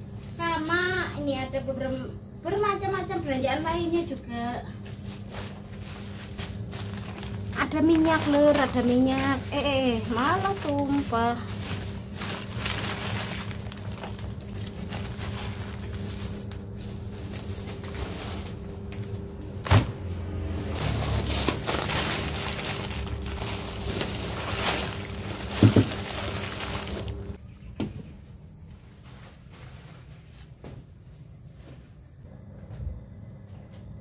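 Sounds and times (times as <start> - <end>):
steady low hum: 0.0 - 30.4
plastic bags rustling: 4.8 - 27.4
items set down knocking: 25.4 - 27.1.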